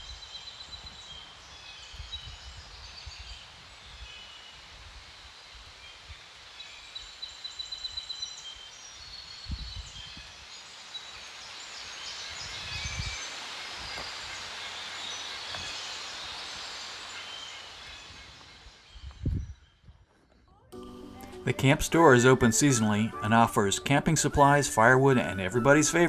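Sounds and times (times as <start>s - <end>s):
small birds chirping: 0.0s - 4.8s, 5.7s - 26.0s
soft steady hiss: 0.0s - 19.3s.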